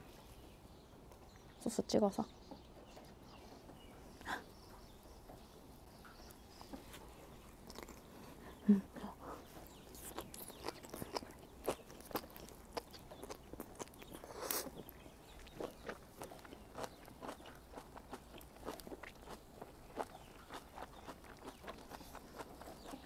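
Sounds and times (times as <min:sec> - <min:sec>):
biting and chewing food: 0:06.2 - 0:23.0.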